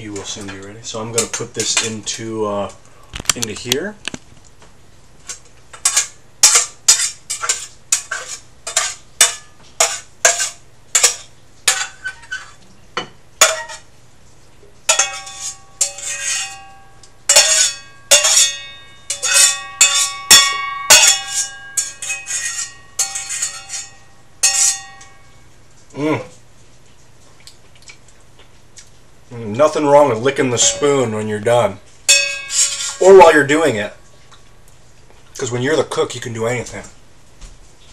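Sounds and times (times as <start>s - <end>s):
spoon scraping a pan: 0.2s - 2.3s, 5.2s - 12.6s, 13.4s - 13.9s, 14.9s - 25.4s, 30.1s - 33.8s.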